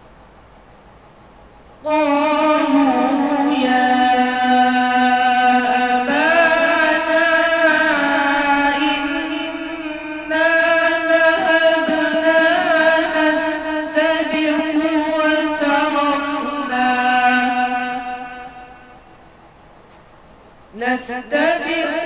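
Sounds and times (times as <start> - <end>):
man chanting melodically: 1.8 - 19.1, 20.7 - 22.0.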